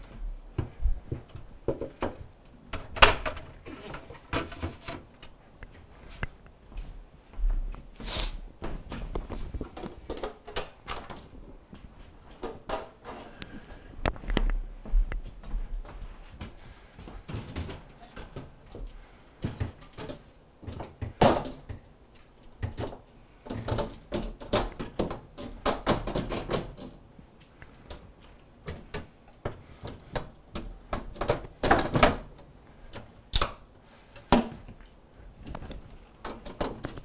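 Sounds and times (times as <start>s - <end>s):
fridge shelves clicking and scraping: 1.2s - 5.2s, 22.6s - 27.0s, 36.1s - 37.0s.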